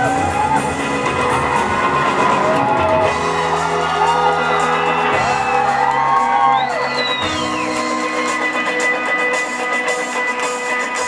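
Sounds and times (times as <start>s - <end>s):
audience whooping: 0.0s - 8.9s
live post-rock band playing: 0.0s - 11.0s.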